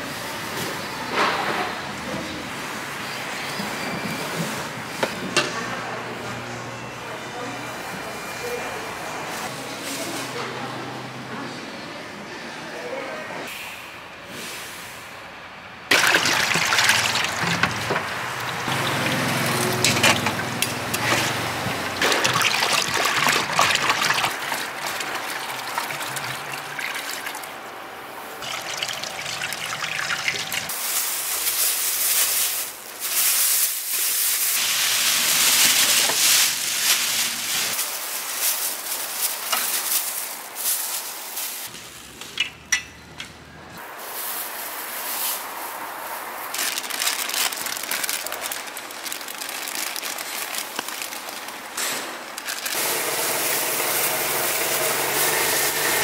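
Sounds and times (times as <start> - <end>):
water splashing into steel pan: 15.9 - 27.5, 28.4 - 30.7.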